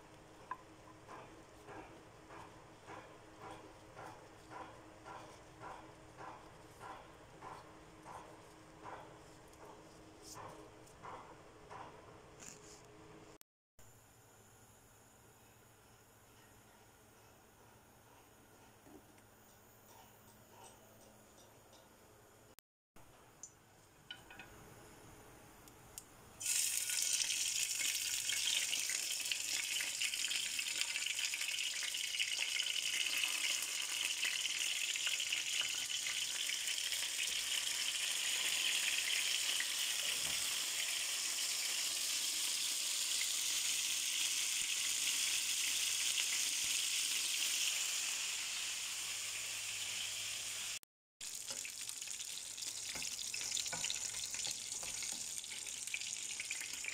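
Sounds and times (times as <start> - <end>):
chicken sizzling in hot oil: 26.4 - 56.9.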